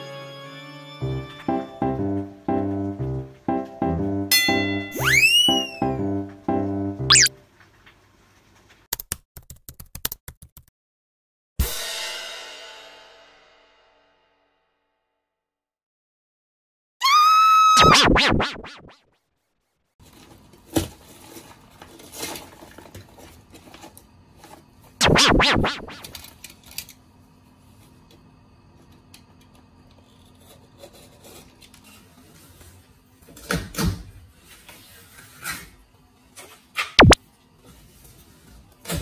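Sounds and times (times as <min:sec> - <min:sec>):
rising electronic tone: 0:04.9 - 0:07.3, 0:17.8 - 0:18.9, 0:25.0 - 0:26.1.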